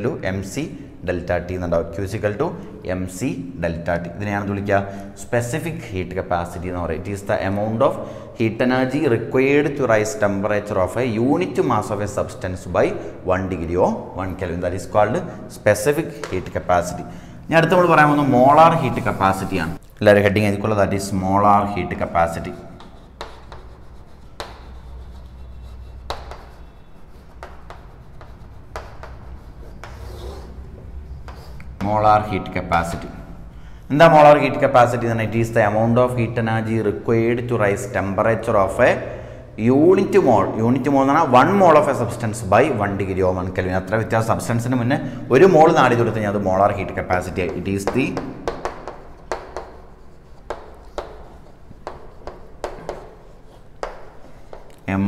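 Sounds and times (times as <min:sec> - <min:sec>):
chalk tapping on chalkboard: 0:16.1 - 0:16.7, 0:21.9 - 0:30.6, 0:31.2 - 0:32.0, 0:45.8 - 0:54.9
chalk scraping: 0:17.7 - 0:19.8, 0:21.8 - 0:31.8, 0:45.8 - 0:54.7.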